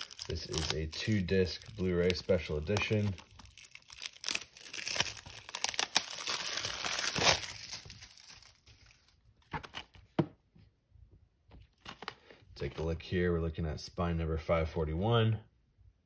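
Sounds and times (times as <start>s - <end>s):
plastic wrapping crinkling: 0.0s - 10.0s.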